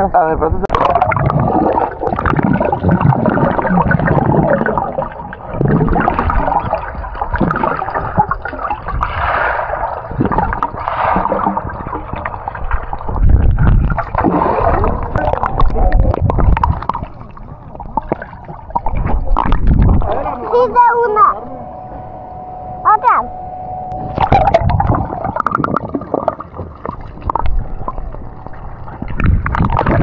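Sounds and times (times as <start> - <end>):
water splashing and gurgling: 0.6 - 21.4, 23.9 - 30.0
heavy low rumble: 11.6 - 30.0.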